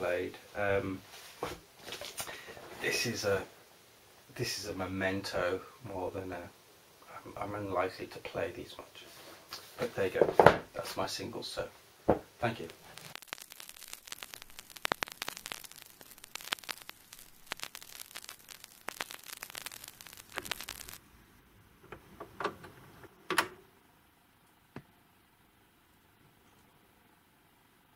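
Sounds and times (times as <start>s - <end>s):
vinyl record crackle and pops: 0.0s - 23.2s
low hiss: 0.0s - 27.9s.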